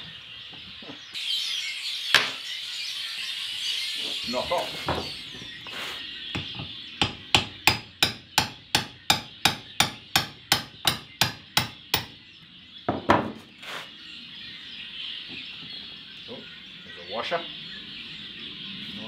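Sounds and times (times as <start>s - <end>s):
hammer striking metal: 6.4s - 12.1s.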